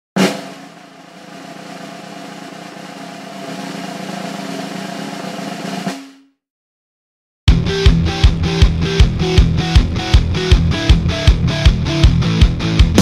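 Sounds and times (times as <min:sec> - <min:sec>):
sudden hit: 0:00.2 - 0:06.4
noisy swell with steady tones: 0:00.8 - 0:05.9.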